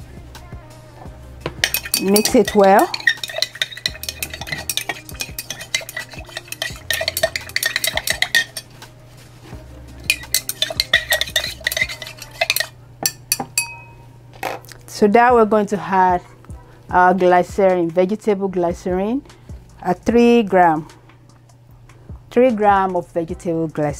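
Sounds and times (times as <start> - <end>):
stirrer clinking against glass: 1.5 - 8.7, 10.0 - 14.0.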